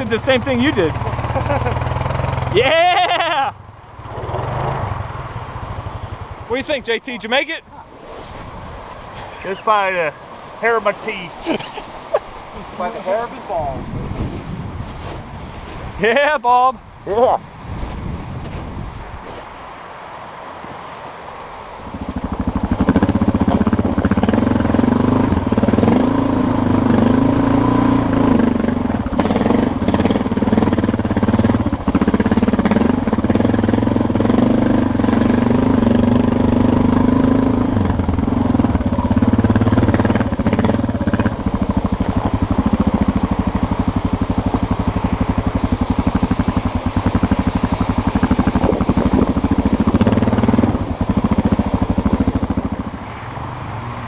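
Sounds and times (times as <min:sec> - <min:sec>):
motorcycle engine revving: 0:00.0 - 0:02.6, 0:04.0 - 0:06.8, 0:22.0 - 0:54.0.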